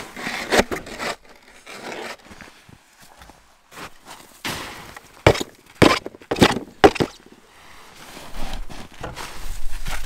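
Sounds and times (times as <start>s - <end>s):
boots crunching in snow: 2.2s - 7.2s.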